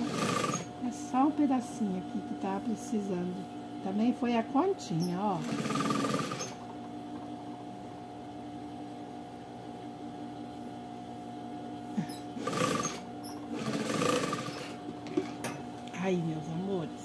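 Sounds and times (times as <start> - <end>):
sewing machine stitching: 0.0 - 0.7, 5.3 - 6.6, 12.3 - 14.8
steady low hum: 0.0 - 17.0.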